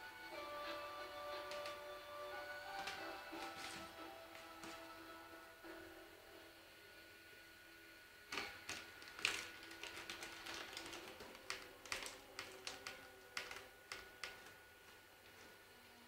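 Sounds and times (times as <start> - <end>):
cats pawing at bag and toys: 2.6 - 5.1, 8.3 - 15.6.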